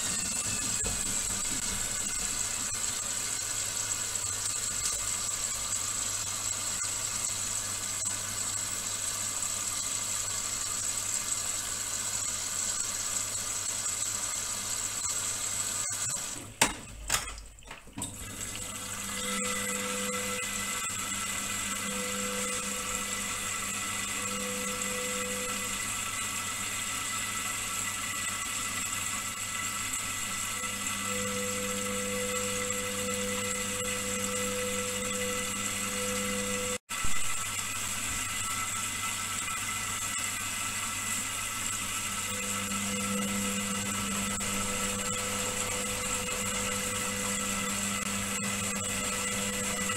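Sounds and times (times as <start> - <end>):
water sloshing in washing machine: 0.0 - 11.6, 12.5 - 23.6
washing machine hum: 0.0 - 49.9.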